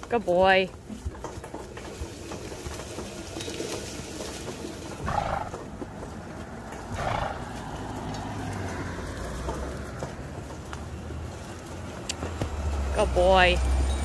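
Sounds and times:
cart rolling rumble: 0:00.0 - 0:14.0.

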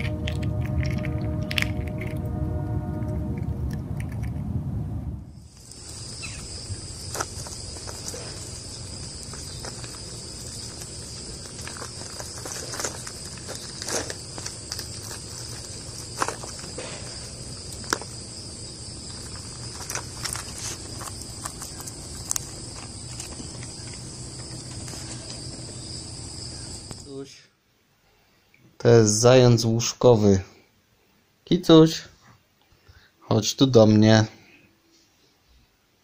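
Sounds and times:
peanut shells clicking and crackling: 0:00.0 - 0:02.3, 0:03.3 - 0:04.4, 0:05.5 - 0:25.7
high-pitched insect chorus: 0:00.0 - 0:03.5, 0:05.3 - 0:27.2.

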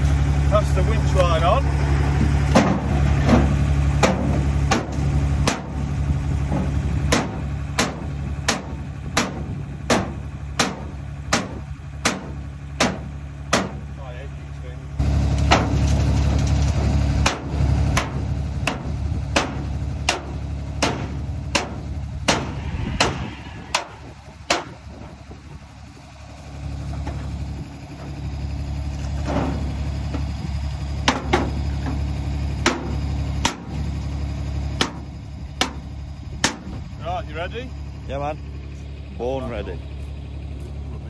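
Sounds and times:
truck engine idling: 0:00.0 - 0:41.0
hammer striking metal: 0:19.4 - 0:25.1.

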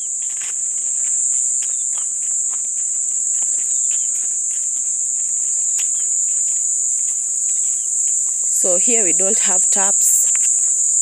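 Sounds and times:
footsteps on dirt path: 0:00.0 - 0:11.0
insects droning: 0:00.0 - 0:11.0.

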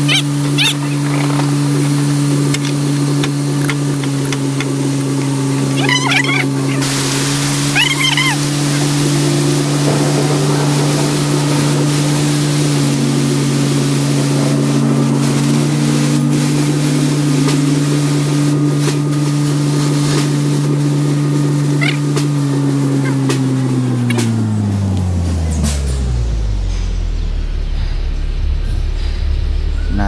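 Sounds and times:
diesel truck engine idling: 0:00.0 - 0:30.0
steady hiss: 0:00.3 - 0:22.7.

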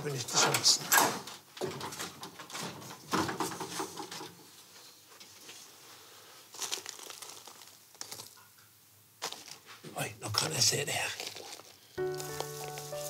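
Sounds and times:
dry straw rustling and crinkling: 0:05.2 - 0:08.4, 0:09.2 - 0:13.0.

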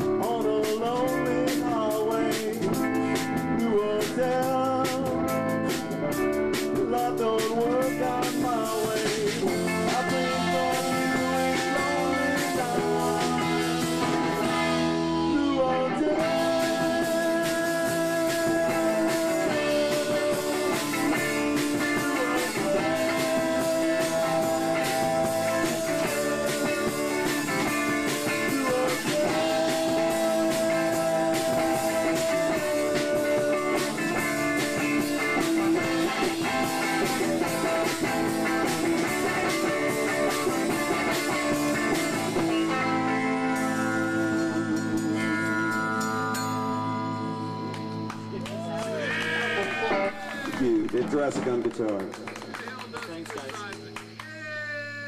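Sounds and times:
live band playing rock song: 0:00.0 - 0:55.0.

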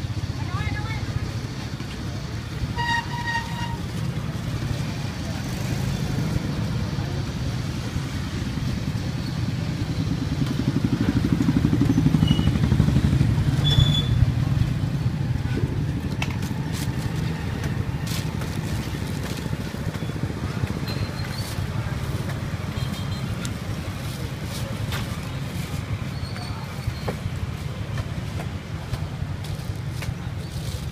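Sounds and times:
motorbike engine rumbling: 0:00.0 - 0:30.9.

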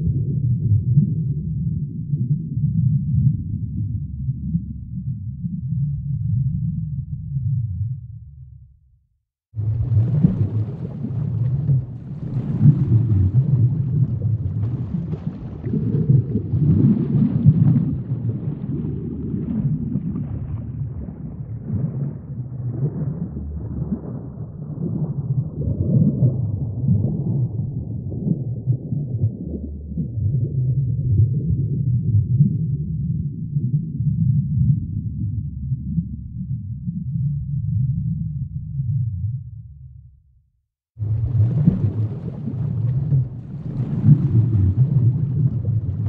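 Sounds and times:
underwater rumble of water: 0:00.0 - 0:08.8, 0:09.5 - 0:40.3, 0:40.9 - 0:46.0
faint crackle: 0:09.6 - 0:30.5, 0:41.0 - 0:46.0.

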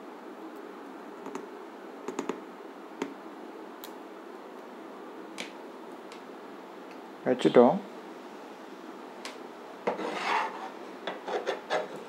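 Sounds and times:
faint steady hum: 0:00.0 - 0:12.0
hands clicking and tapping: 0:02.1 - 0:02.4.

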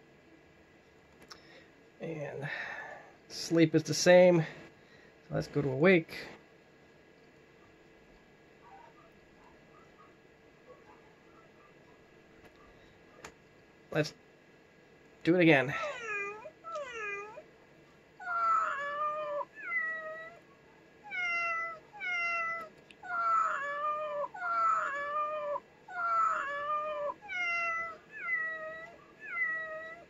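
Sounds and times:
recorded cat meows: 0:15.8 - 0:17.4, 0:18.2 - 0:20.4, 0:21.0 - 0:30.0.

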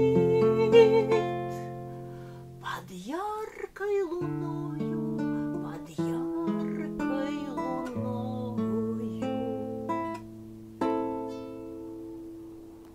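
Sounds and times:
classical guitar chords: 0:00.0 - 0:12.9.

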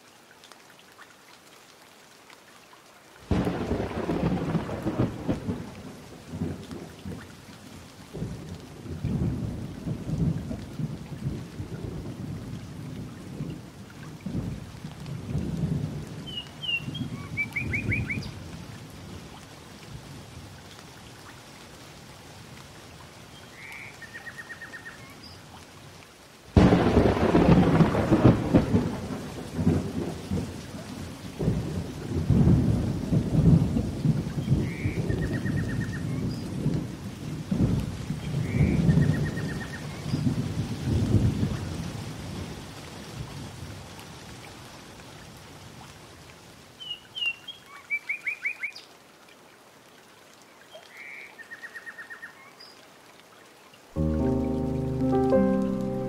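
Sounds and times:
steady rain: 0:00.0 - 0:56.0
thunder rumbling: 0:03.3 - 0:06.6, 0:26.6 - 0:30.5.

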